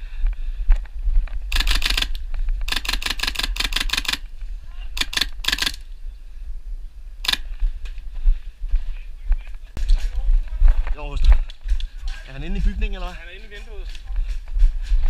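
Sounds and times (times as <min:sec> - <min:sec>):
airsoft rifle full-auto bursts: 0:01.5 - 0:04.3, 0:05.0 - 0:05.8.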